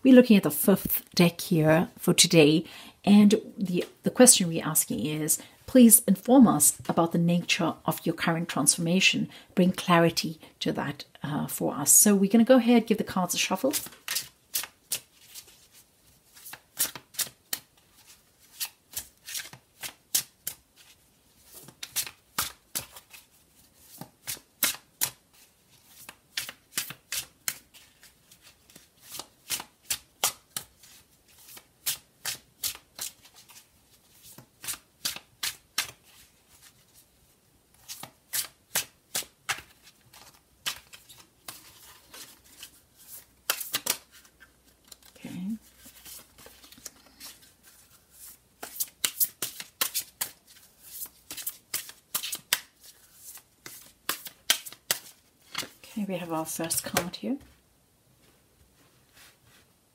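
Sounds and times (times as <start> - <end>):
cards shuffled by hand: 13.7 - 37.0, 37.8 - 55.8.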